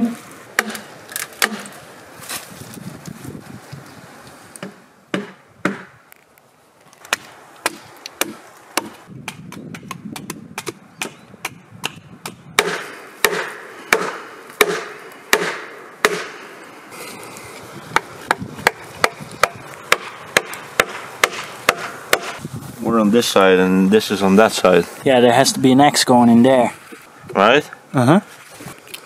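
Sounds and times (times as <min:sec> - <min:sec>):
axe chopping wood: 0:00.6 - 0:01.8, 0:04.6 - 0:06.0, 0:07.1 - 0:16.4, 0:17.9 - 0:22.4.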